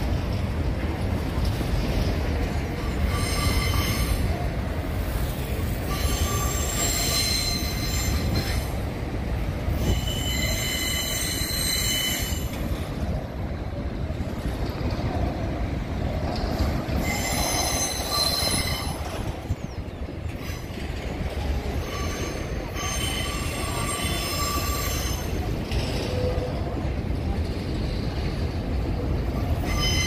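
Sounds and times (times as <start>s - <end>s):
train wheels rumbling on rail: 0.0s - 30.0s
wheel squeal: 2.8s - 4.4s, 5.8s - 8.8s, 9.7s - 12.9s, 16.9s - 26.6s, 29.5s - 30.0s.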